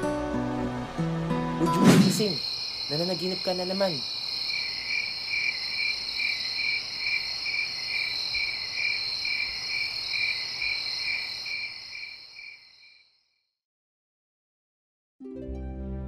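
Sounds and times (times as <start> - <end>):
crickets and insects trilling: 1.6 - 13.2.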